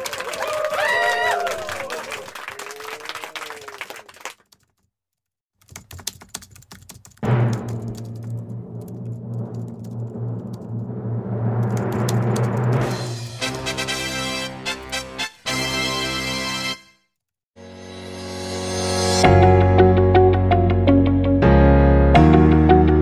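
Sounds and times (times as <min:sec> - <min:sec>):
keyboard typing clicks: 0:05.6 - 0:09.7.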